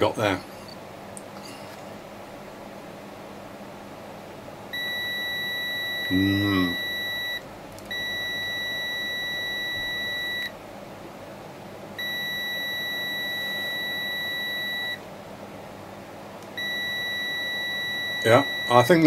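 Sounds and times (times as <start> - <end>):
multimeter continuity beep: 4.7 - 10.6, 12.0 - 15.0, 16.5 - 19.0.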